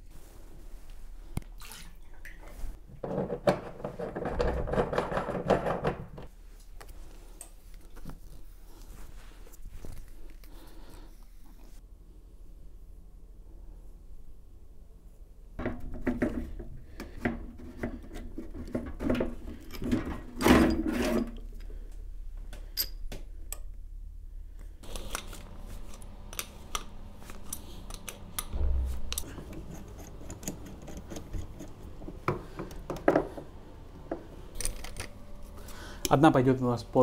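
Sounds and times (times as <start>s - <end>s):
faint steady hum: 21.2s - 37.0s
plumbing fittings clicking and scraping: 24.8s - 33.4s.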